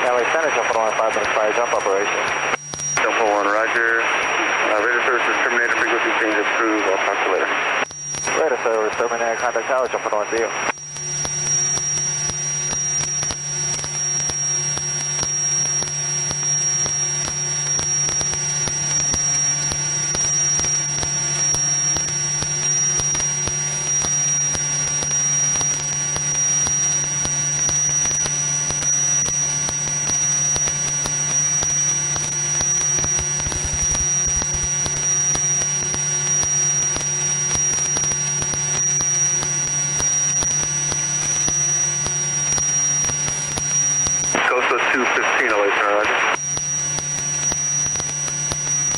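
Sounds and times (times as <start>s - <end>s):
high-pitched whine: 0.0s - 48.9s
propeller plane engine drone: 12.7s - 48.9s.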